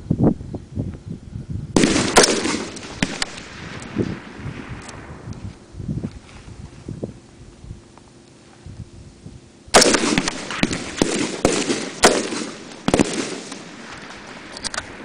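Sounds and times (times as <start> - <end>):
rifle shots echoing: 1.8 - 5.3, 9.7 - 15.0.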